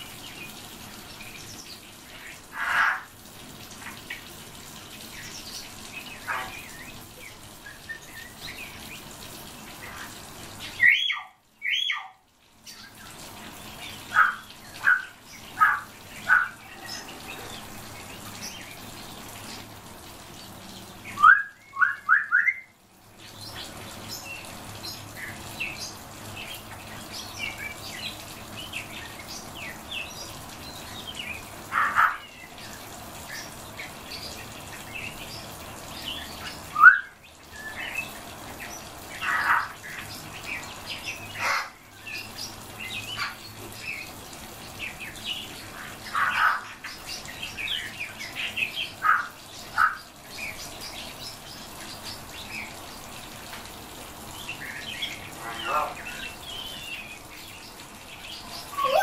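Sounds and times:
songbirds chirping and twittering: 0:00.0 - 0:59.0
loud rising bird calls: 0:58.4 - 0:59.0.

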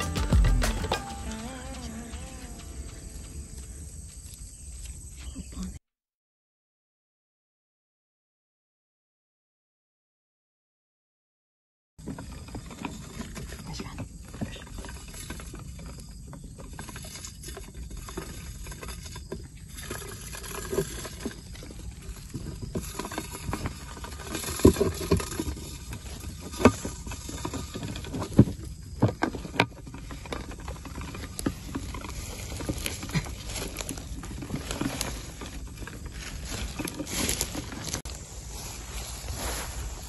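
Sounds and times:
plastic box rustling: 0:12.0 - 0:40.0.

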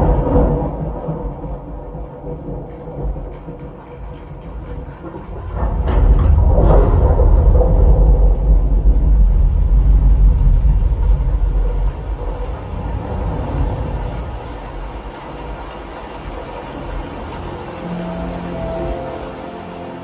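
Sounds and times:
deep bass rumble: 0:05.4 - 0:15.1.

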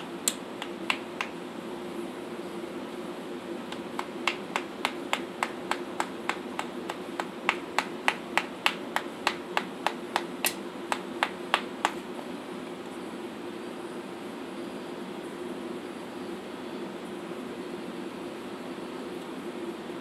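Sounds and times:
mallet tapping knife through hoof: 0:00.3 - 0:01.3, 0:03.7 - 0:12.0.

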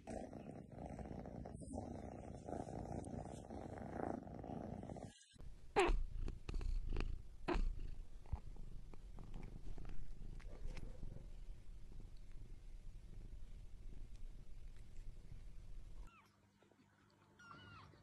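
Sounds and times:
cat purring: 0:00.0 - 0:16.1.

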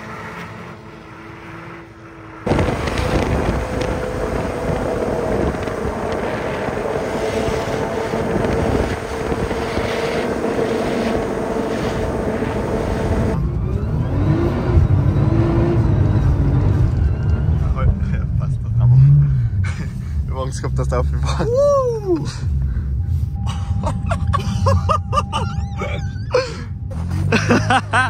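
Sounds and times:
distant car engine: 0:00.0 - 0:28.0
loud car engine droning: 0:00.0 - 0:28.0
rushing noise: 0:02.4 - 0:13.4.

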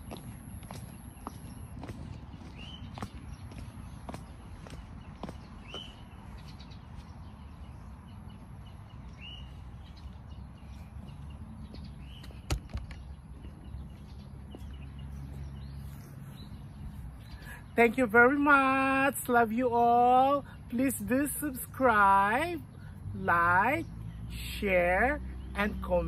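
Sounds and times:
bird chirps: 0:00.0 - 0:18.5.

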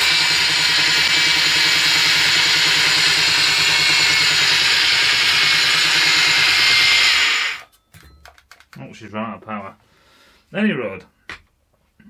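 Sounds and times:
belt sander grinding metal: 0:00.0 - 0:07.7.

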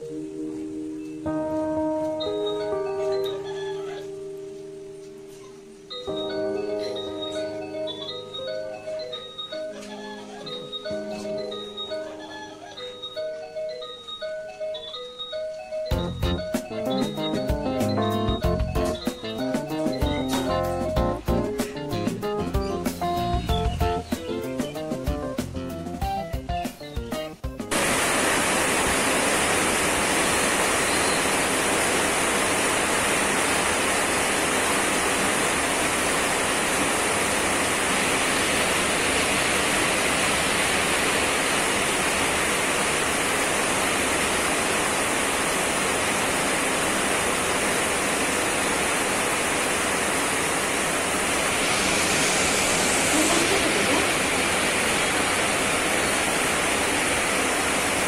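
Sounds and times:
steady rushing noise: 0:27.7 - 0:58.0.

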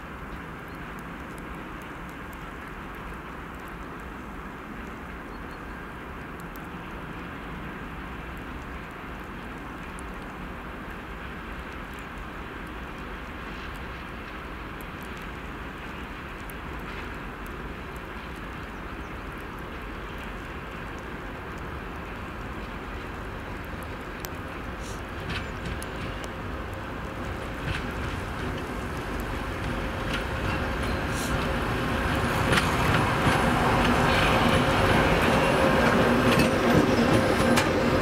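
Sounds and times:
diesel locomotive engines droning: 0:12.4 - 0:38.0.

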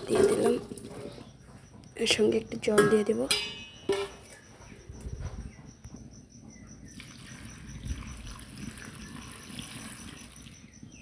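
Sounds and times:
insect chirping: 0:00.4 - 0:11.0
water pouring into metal pan: 0:06.9 - 0:10.6.

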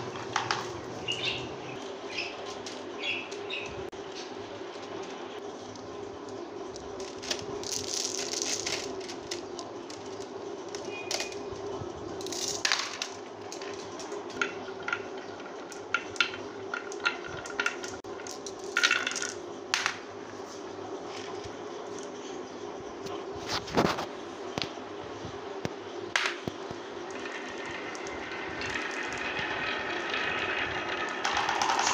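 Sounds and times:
marbles rolling on wooden track: 0:00.0 - 0:00.9, 0:06.8 - 0:20.0, 0:26.2 - 0:31.9
marbles clacking together: 0:07.0 - 0:11.4, 0:12.2 - 0:20.0, 0:27.1 - 0:31.9.

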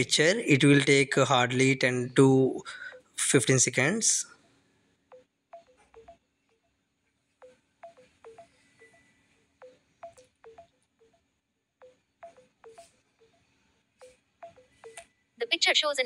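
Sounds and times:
faint electronic phone blips: 0:07.4 - 0:10.7, 0:12.2 - 0:13.4, 0:14.0 - 0:15.1.

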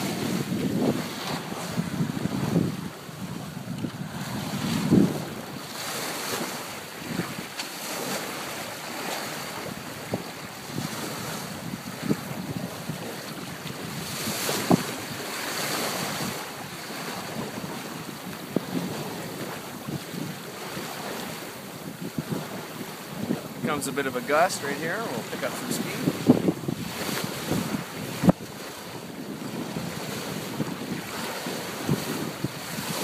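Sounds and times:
water rushing along hull: 0:00.0 - 0:33.0
wind buffeting microphone: 0:00.0 - 0:33.0.

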